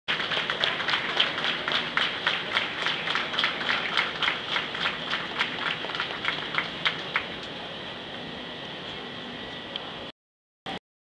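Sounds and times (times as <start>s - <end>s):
crowd applauding: 0.1s - 7.3s.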